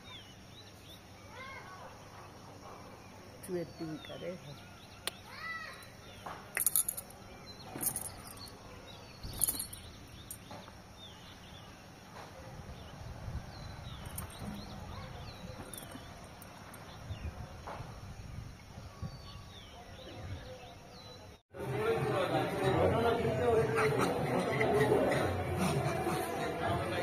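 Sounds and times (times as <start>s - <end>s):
small birds chirping: 0.0s - 21.4s.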